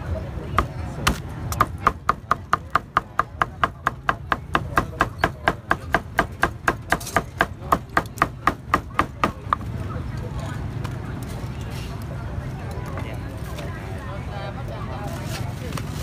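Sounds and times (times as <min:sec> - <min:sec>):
cleaver chopping on wooden block: 0:00.6 - 0:09.7.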